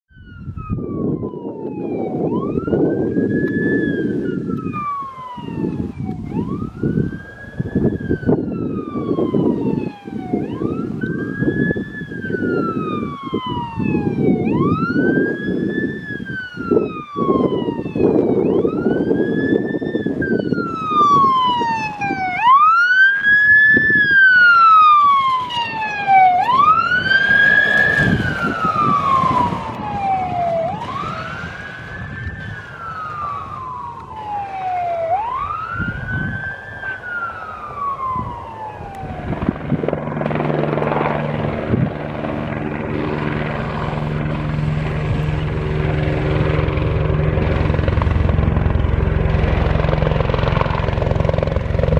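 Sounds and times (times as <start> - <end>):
wailing siren: 0.1 - 51.9.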